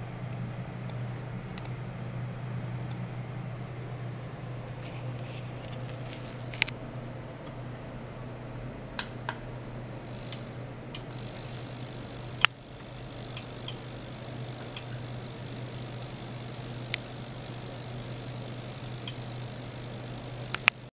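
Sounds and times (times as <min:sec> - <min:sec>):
low electrical hum: 0:00.0 - 0:20.9
small clicks: 0:05.6 - 0:06.8, 0:09.0 - 0:20.9
high-pitched hiss: 0:09.1 - 0:20.9.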